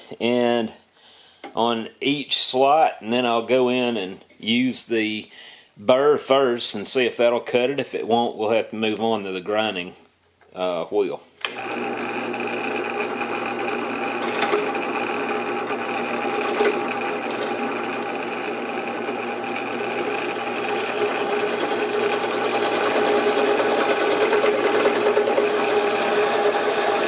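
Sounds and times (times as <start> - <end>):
drill press motor hum: 11.4 - 27.0
drill bit scraping metal: 11.6 - 27.0.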